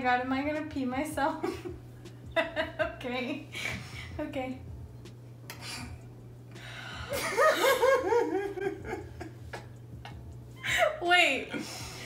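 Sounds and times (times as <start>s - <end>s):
faint low hum: 0.0s - 12.0s
person laughing: 1.4s - 3.8s, 7.1s - 10.9s.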